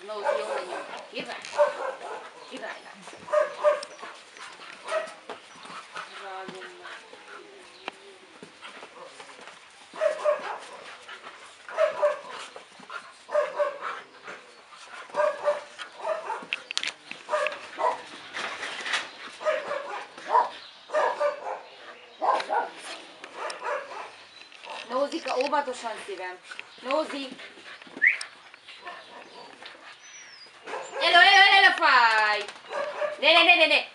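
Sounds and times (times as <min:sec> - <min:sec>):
dogs play-fighting: 0:00.0 - 0:33.4
dog barking: 0:00.2 - 0:02.6, 0:03.3 - 0:04.0, 0:04.8 - 0:05.2, 0:10.0 - 0:10.9, 0:11.7 - 0:12.3, 0:13.3 - 0:13.8, 0:15.1 - 0:16.5, 0:17.3 - 0:18.1, 0:19.4 - 0:24.9, 0:30.6 - 0:31.2, 0:32.7 - 0:33.2.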